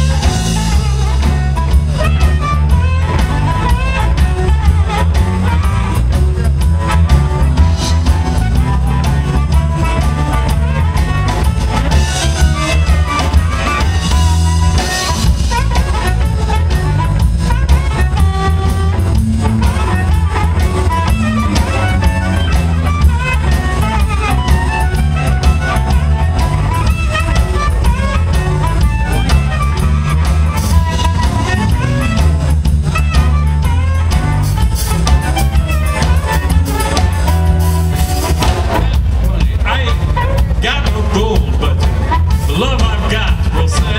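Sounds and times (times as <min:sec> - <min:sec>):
bass guitar: 0:00.0 - 0:43.9
drum kit: 0:00.0 - 0:43.9
electric guitar: 0:00.0 - 0:43.9
harmonica playing melody: 0:00.0 - 0:43.9.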